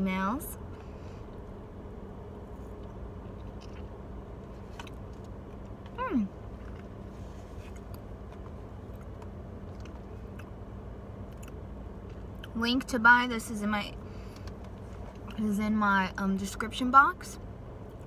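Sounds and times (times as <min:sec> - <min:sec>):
steady low hum: 0:00.0 - 0:18.0
person chewing soft food: 0:02.4 - 0:12.6.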